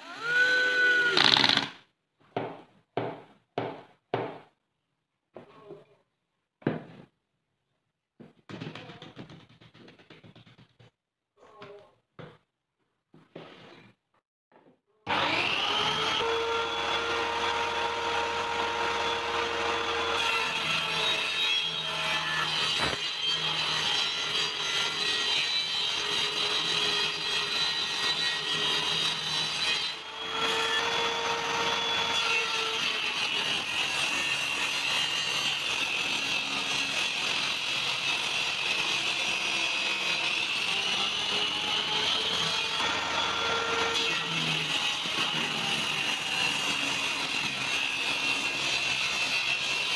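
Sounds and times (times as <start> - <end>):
table saw ripping wood: 0.0 - 1.8, 15.1 - 49.9.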